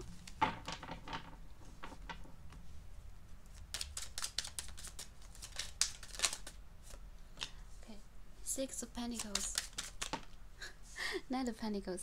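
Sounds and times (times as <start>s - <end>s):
cards being shuffled: 3.5s - 7.6s, 8.9s - 10.4s.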